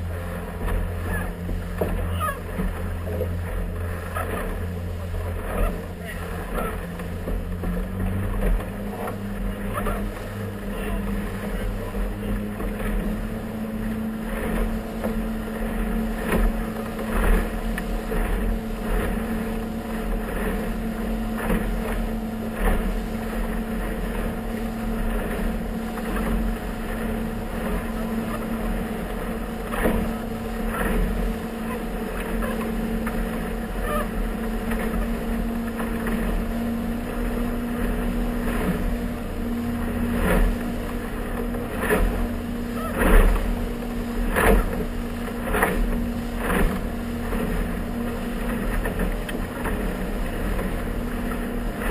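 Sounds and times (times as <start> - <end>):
hull knocking and splashing: 0.0 - 51.9
motorboat engine humming: 0.0 - 51.9.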